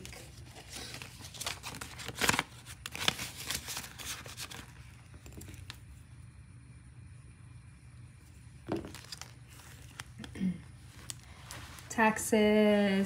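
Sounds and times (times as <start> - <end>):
plastic pouch crinkling: 0.0 - 5.8, 8.7 - 11.9.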